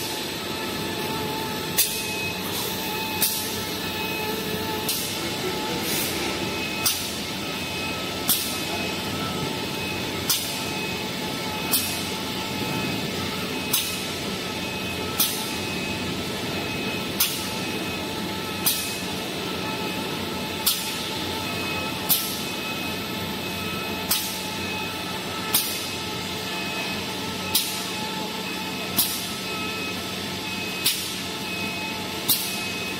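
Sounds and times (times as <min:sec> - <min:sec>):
machine humming: 0:00.0 - 0:32.9
pneumatic air bursts: 0:01.7 - 0:03.6, 0:04.8 - 0:07.2, 0:08.2 - 0:08.7, 0:10.2 - 0:10.6, 0:11.7 - 0:12.1, 0:13.7 - 0:14.1, 0:15.2 - 0:15.5, 0:17.2 - 0:17.5, 0:18.6 - 0:19.0, 0:20.6 - 0:21.1, 0:22.1 - 0:22.4, 0:25.5 - 0:25.9, 0:27.5 - 0:27.9, 0:29.0 - 0:29.3, 0:30.8 - 0:31.2, 0:32.2 - 0:32.6.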